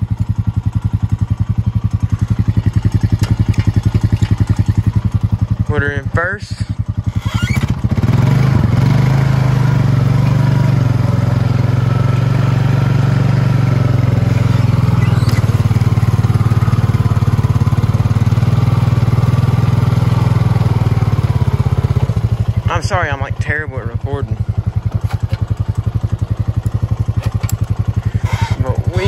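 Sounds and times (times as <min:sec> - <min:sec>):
atv engine running: 0:00.0 - 0:29.0
water churning: 0:02.9 - 0:04.9.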